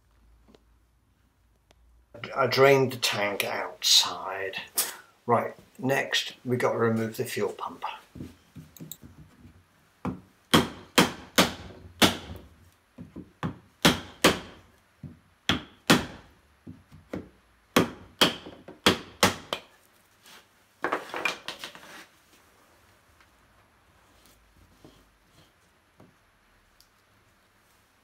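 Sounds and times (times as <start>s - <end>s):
scraping and rustling of handling: 19.8s - 28.0s.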